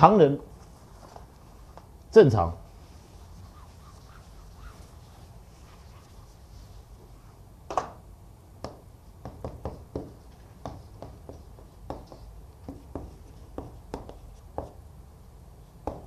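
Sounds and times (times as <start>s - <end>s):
chalk tapping on chalkboard: 8.6s - 14.8s.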